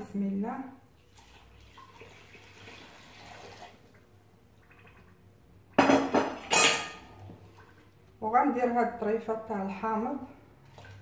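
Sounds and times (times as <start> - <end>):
water pouring into pot: 0.9 - 5.2.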